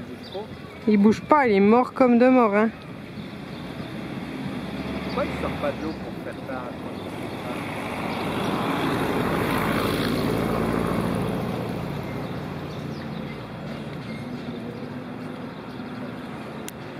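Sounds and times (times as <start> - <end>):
motor passing by: 3.4 - 16.6.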